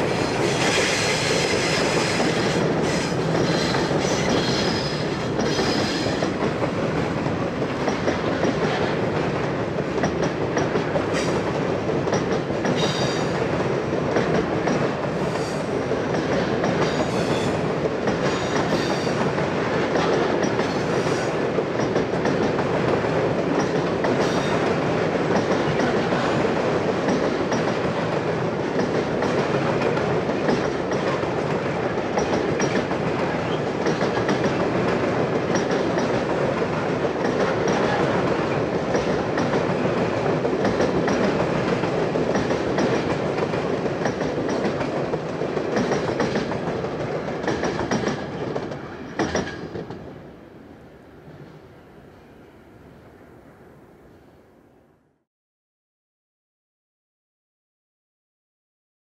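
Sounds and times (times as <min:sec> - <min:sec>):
train wheels rumbling on rails: 0:00.0 - 0:51.9
wheels clicking over rail joints: 0:27.0 - 0:50.0.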